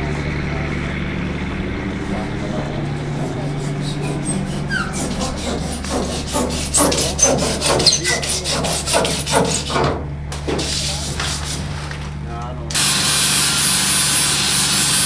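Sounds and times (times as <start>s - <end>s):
steady low hum: 0.0s - 13.5s
bar scraping foam off wood: 3.2s - 12.2s.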